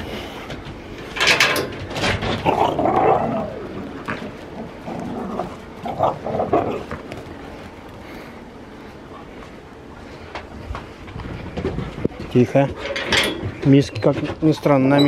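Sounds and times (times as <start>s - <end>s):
dogs barking and growling: 1.8s - 8.2s.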